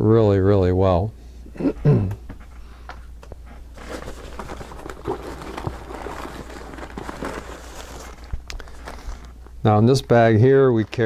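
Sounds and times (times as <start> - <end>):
backpack fabric rustling: 3.7 - 9.3.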